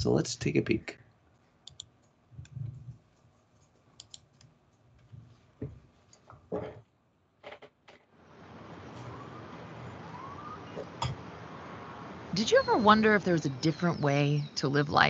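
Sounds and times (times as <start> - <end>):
computer mouse clicks: 1.6 - 2.6, 3.6 - 4.5.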